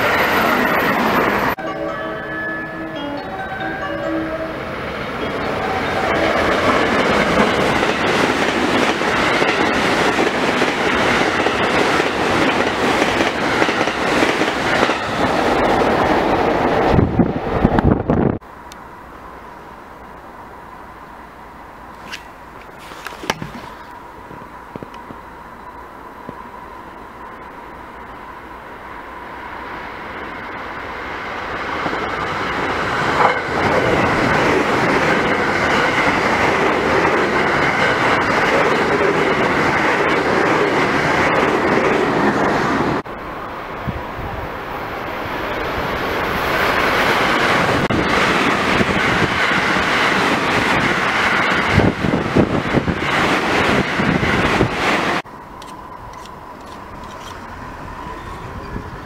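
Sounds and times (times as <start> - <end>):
train wheels rumbling on rail: 4.7 - 18.9, 21.8 - 59.0
rapid train clattering: 4.9 - 17.4, 31.5 - 43.1, 46.6 - 59.0.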